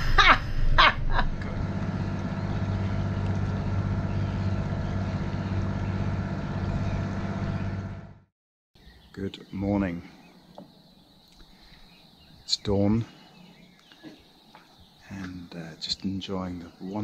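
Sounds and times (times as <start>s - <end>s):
boat diesel engines droning: 0.0s - 8.3s.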